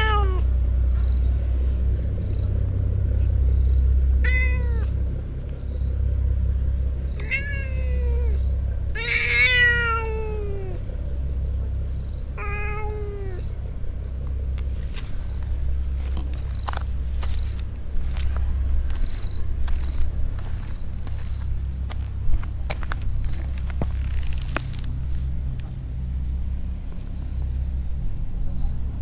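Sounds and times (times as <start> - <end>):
cat yowling: 0.0 - 0.5, 4.2 - 5.0, 7.1 - 10.9, 12.3 - 13.6
crickets chirping: 0.2 - 29.0.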